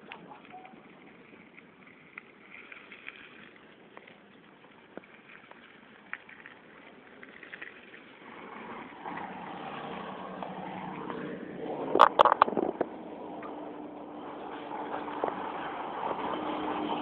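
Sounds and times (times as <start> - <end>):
motor vehicle engine hum: 0.0 - 17.0
bicycle rattling clicks: 0.1 - 8.4.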